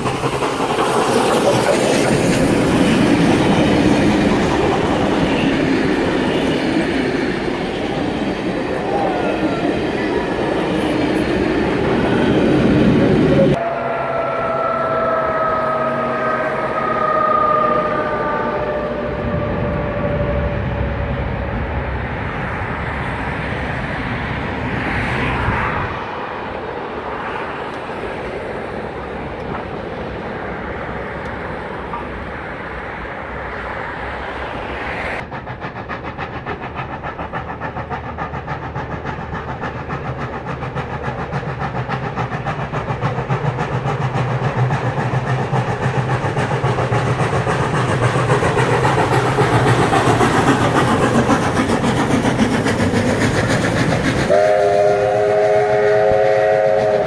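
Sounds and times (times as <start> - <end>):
steam locomotive exhaust beats: 0.0 - 26.0, 27.1 - 57.0
train rumbling across bridge: 0.0 - 57.0
train horn: 13.4 - 21.1, 54.3 - 57.0.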